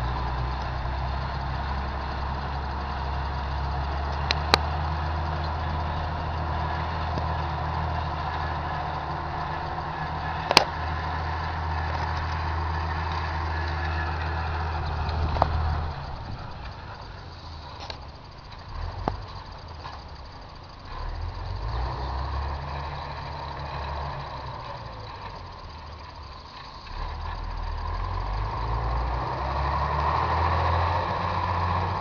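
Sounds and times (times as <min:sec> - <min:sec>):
tractor diesel engine running: 0:00.0 - 0:32.0
sharp clicks: 0:03.8 - 0:20.9.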